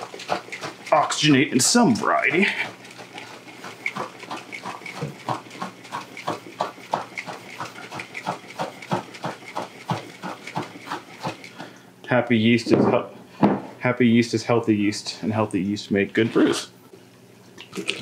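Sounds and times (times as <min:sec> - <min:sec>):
juice sloshing in a container: 0:00.0 - 0:11.8, 0:17.4 - 0:18.0.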